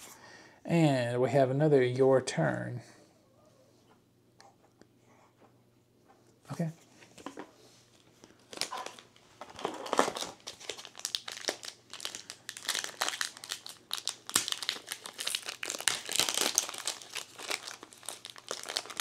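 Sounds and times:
foil pack crinkling: 0:08.0 - 0:19.0.

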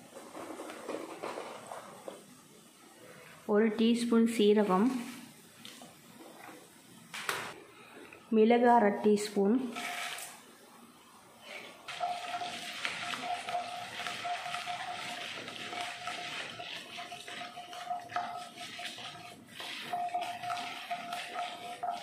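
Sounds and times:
oil sizzling in pan: 0:11.9 - 0:22.0
spatula scraping pan: 0:11.9 - 0:22.0.

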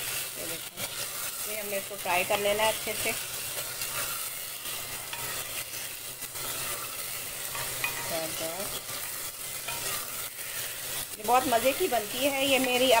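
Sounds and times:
chicken sizzling in hot oil: 0:00.0 - 0:13.0
wooden spoon scraping pot: 0:02.8 - 0:13.0.

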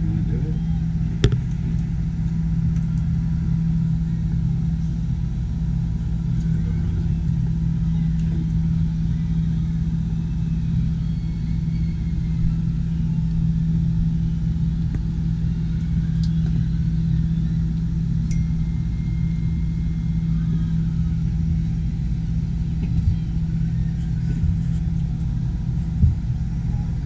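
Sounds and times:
low mechanical hum: 0:00.0 - 0:27.0.

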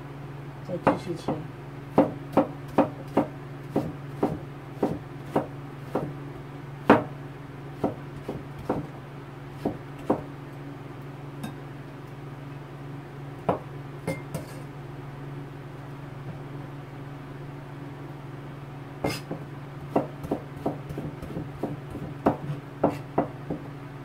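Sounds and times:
low steady hum: 0:00.0 - 0:24.0
knife knocking on cutting board: 0:19.1 - 0:23.6.

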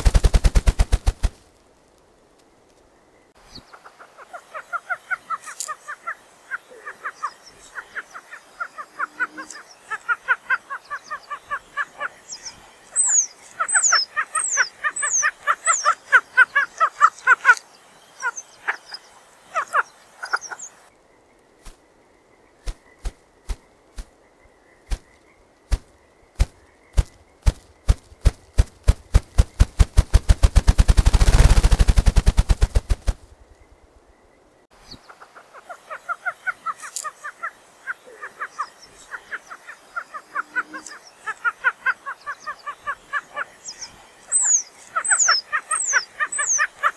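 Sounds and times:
grouse wing-beat drumming thumps: 0:00.0 - 0:01.4, 0:25.7 - 0:33.2
grouse clucking calls: 0:03.6 - 0:20.9, 0:34.9 - 0:46.9.

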